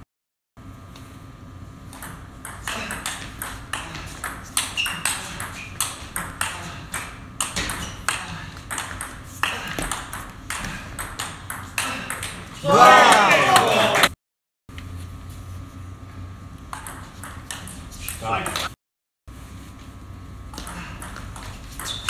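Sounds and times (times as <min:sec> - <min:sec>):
table tennis ball clicking: 0:01.9 - 0:12.5, 0:16.7 - 0:18.7.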